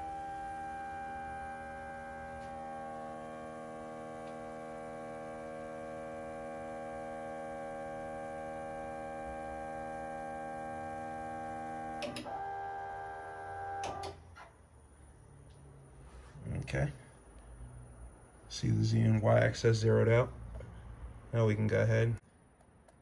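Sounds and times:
router motors whining: 0.0 - 14.2.

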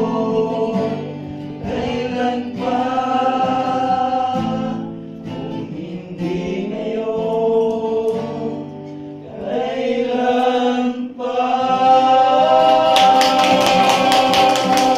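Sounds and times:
men singing gospel: 0.0 - 14.9.

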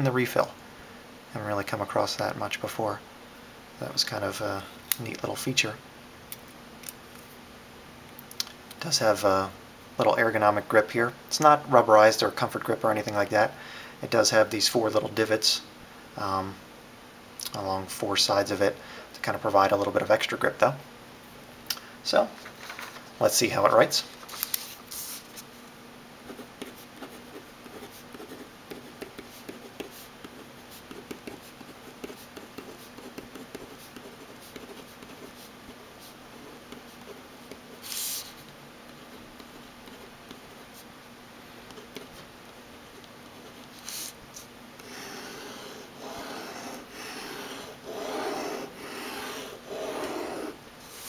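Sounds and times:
pen scratching on paper: 26.3 - 38.3, 39.4 - 40.8, 44.8 - 51.0
pen strokes sweeping across paper: 37.8 - 38.4, 43.4 - 44.2, 44.8 - 51.0.

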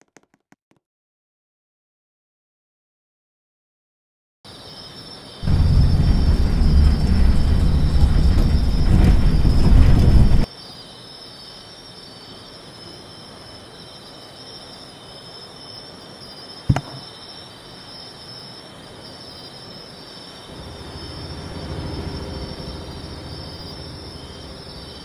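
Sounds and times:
high-pitched insect chorus: 4.5 - 25.0
low rumble: 5.4 - 10.5
sharp click: 16.7 - 17.0.

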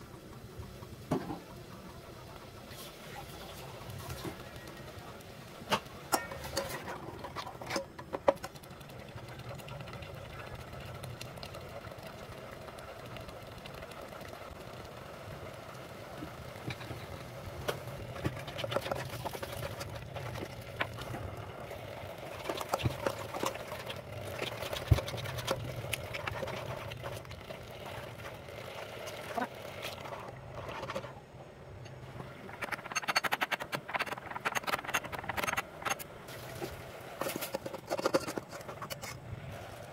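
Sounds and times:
thick sauce simmering and popping: 0.0 - 31.1
metal ladle stirring and knocking: 5.7 - 8.6, 32.4 - 36.0.

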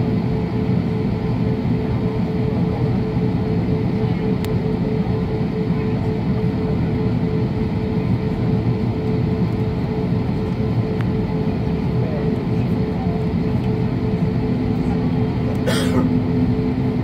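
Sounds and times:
aircraft engines rumbling: 0.0 - 17.0.

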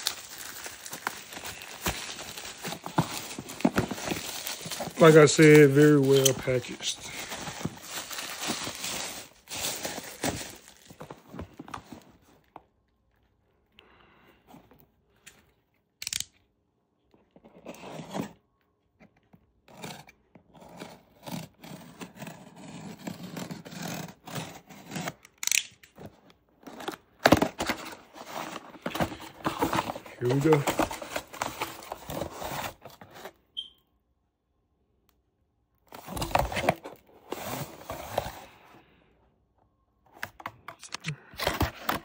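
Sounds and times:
bubble wrap crinkling: 0.0 - 11.1
cardboard scraping and rustling: 0.0 - 12.5, 17.3 - 18.4, 26.0 - 33.4, 35.9 - 38.6, 40.2 - 42.0.

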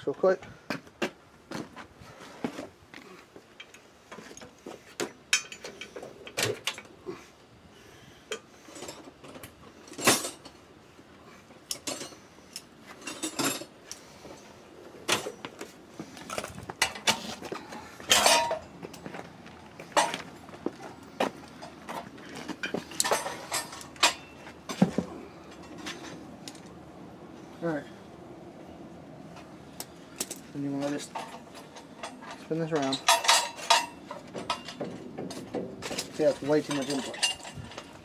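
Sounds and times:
metal tools clinking in tool chest: 11.7 - 13.8, 16.3 - 19.0, 21.6 - 26.7, 30.2 - 38.0.

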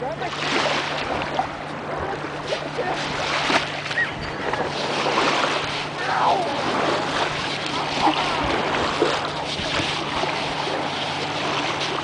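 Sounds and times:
small waves washing on shore: 0.0 - 12.0
wind on microphone: 0.5 - 12.0.

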